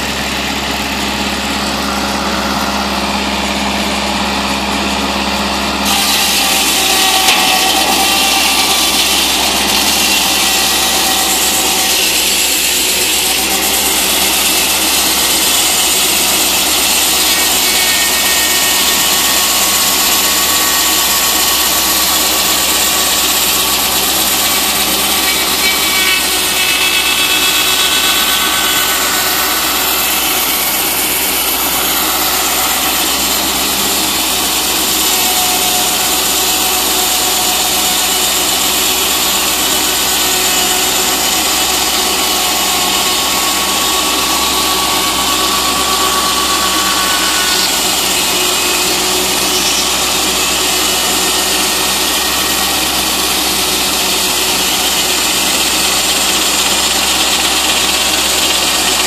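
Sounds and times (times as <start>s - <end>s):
circular saw cutting log: 0.0s - 59.0s.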